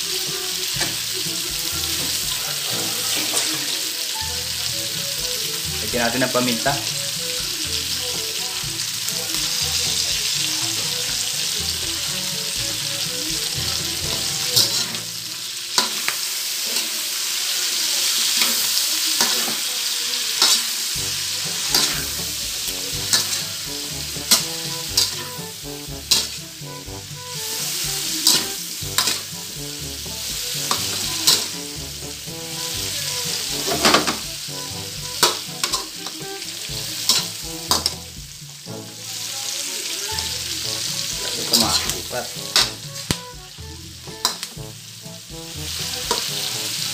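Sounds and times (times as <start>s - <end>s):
food sizzling in a wok: 0.0s - 46.9s
metal spatula scraping a pan: 0.2s - 7.2s, 7.8s - 17.0s, 18.1s - 19.7s, 20.3s - 39.2s, 40.1s - 46.9s.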